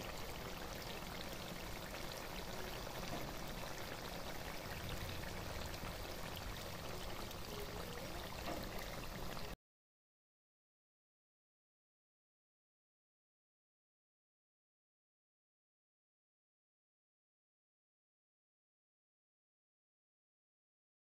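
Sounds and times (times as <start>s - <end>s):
curry bubbling in a wok: 0.0s - 9.6s.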